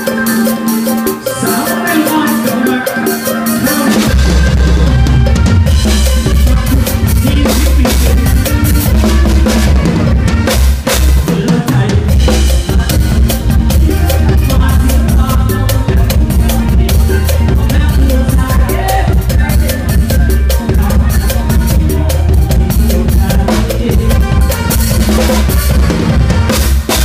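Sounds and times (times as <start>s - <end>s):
drum kit played hard: 0.0s - 27.0s
guitars and horns: 0.0s - 27.0s
heavy bass line: 0.0s - 27.0s.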